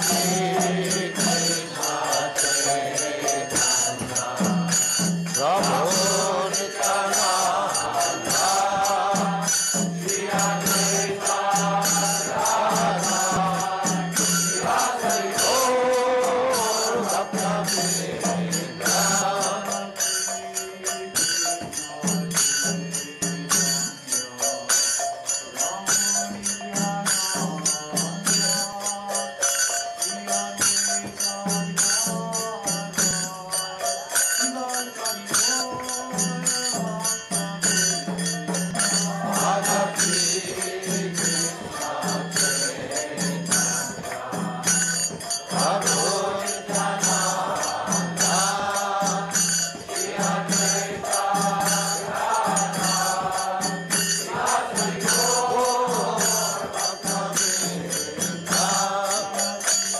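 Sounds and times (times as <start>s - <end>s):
man chanting: 0.0s - 20.0s
hand cymbals ringing: 0.0s - 59.9s.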